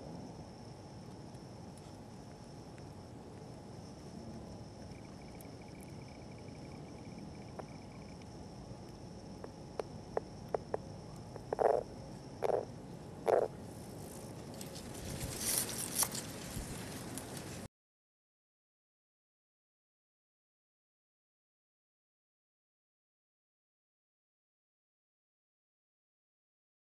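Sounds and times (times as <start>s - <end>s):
faint insect buzz: 0.0s - 17.7s
frog croaks: 3.9s - 13.6s
frog clicks: 4.7s - 13.6s.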